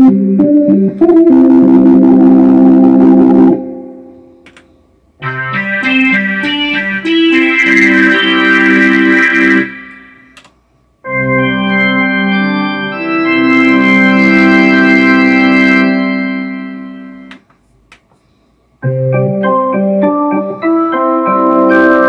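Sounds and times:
pipe organ sustained chords: 0:00.0 - 0:04.6, 0:05.2 - 0:10.4, 0:11.0 - 0:17.3
synthesizer organ chord: 0:00.0 - 0:10.4, 0:11.0 - 0:17.4, 0:18.8 - 0:22.0.

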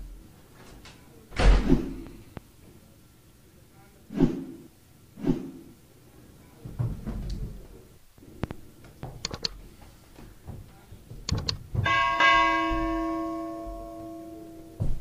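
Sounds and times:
mechanism clicks: 0:09.2 - 0:09.6, 0:11.2 - 0:11.6
bell ringing: 0:11.8 - 0:15.0.

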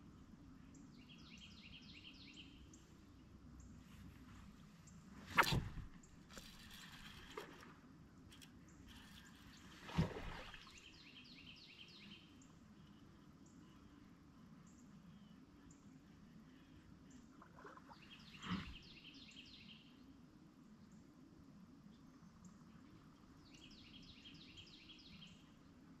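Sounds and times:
fishing rod cast thump: 0:05.3 - 0:07.6.

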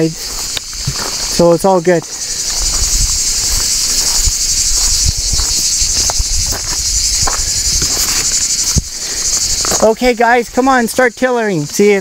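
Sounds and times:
shrill insect chorus: 0:00.0 - 0:12.0
low thumps: 0:02.6 - 0:09.8.

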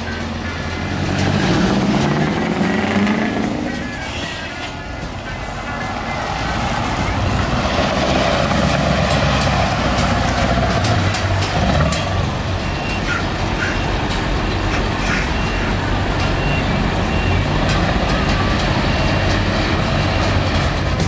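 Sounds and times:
truck engine rumbling: 0:00.0 - 0:21.0
high warning beep: 0:12.6 - 0:14.1, 0:15.0 - 0:19.3.

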